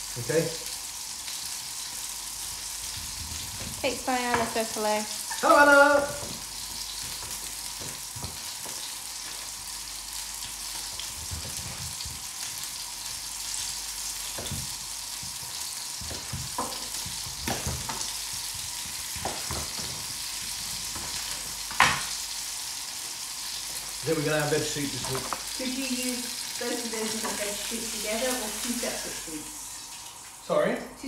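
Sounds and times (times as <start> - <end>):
steady hiss: 0.0 - 31.0
knife knocking on chopping board: 16.0 - 18.0.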